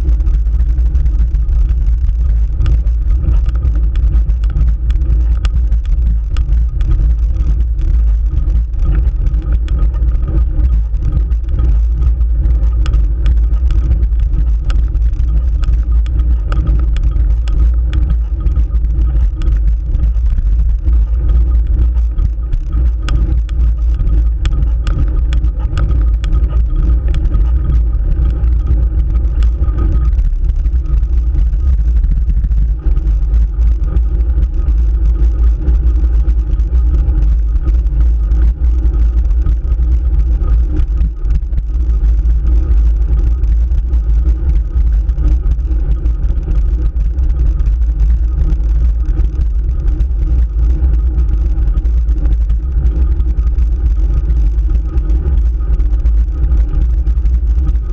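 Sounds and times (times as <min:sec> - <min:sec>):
wind and road noise: 0:00.0 - 0:57.8
sharp clicks: 0:01.6 - 0:35.3.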